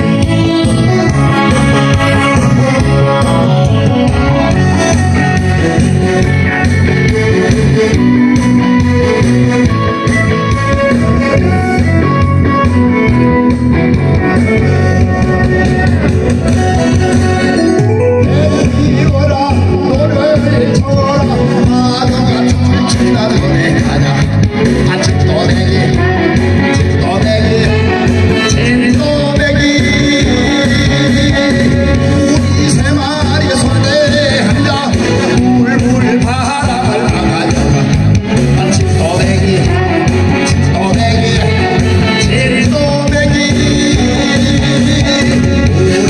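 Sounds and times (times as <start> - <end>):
backing track with steady beat: 0.0 - 46.0
instrumental guitar and drums: 0.0 - 46.0
man singing into microphone: 17.4 - 46.0.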